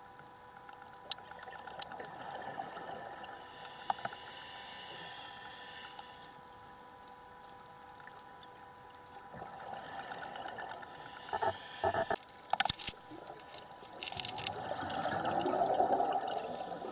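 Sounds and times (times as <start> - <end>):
hissing regulator inhalations: 3.3 - 6.4, 9.8 - 14.5
exhaled bubbles rushing: 14.5 - 16.9.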